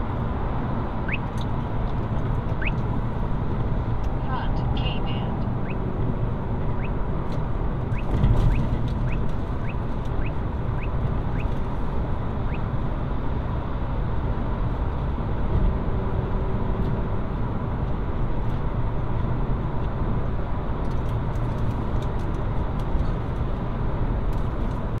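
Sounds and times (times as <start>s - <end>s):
road and tyre noise: 0.0s - 25.0s.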